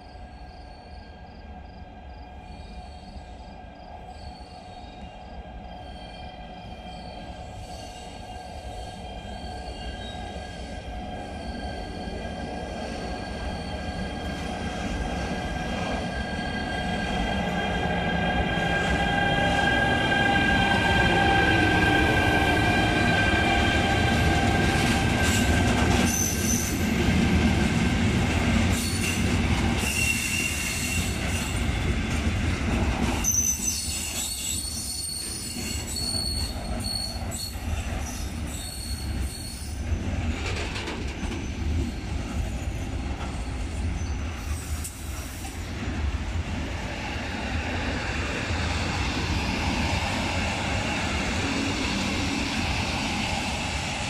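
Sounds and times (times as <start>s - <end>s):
train brakes squealing: 0.0s - 27.2s, 28.6s - 31.9s, 33.1s - 45.8s
train rumble: 0.0s - 54.0s.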